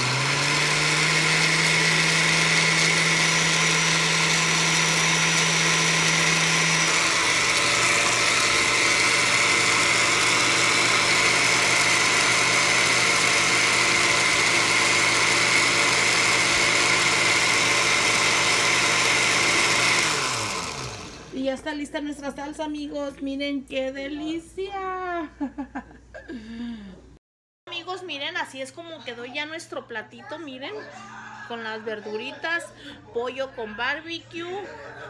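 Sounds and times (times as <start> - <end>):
blender motor running: 0.0 - 21.5.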